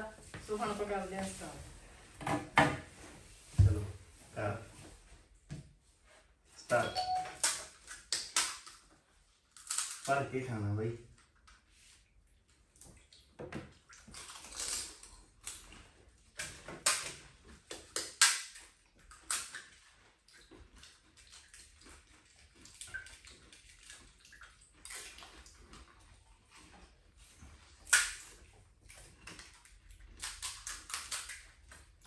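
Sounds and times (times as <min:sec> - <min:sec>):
crisp shells cracking: 0:09.5 - 0:10.1, 0:14.1 - 0:15.6, 0:30.2 - 0:31.4
water splashing and slurping: 0:11.1 - 0:32.0.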